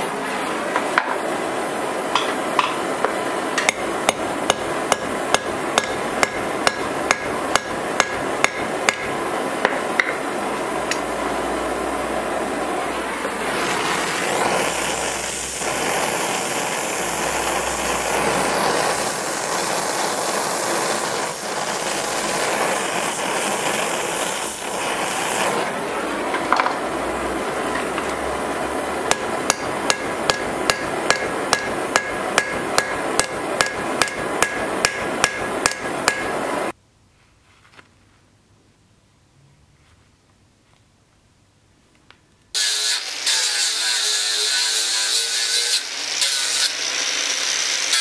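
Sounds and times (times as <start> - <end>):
loud steady rushing noise: 0.0 - 36.8
hammer blows on anvil: 29.1 - 36.3.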